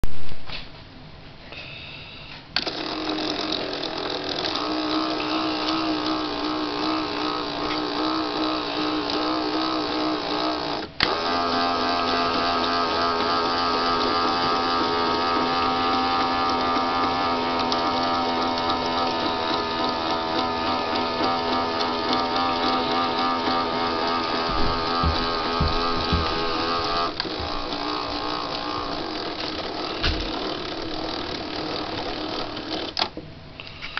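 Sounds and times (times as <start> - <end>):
toy train motor whirring: 2.6 - 33.1.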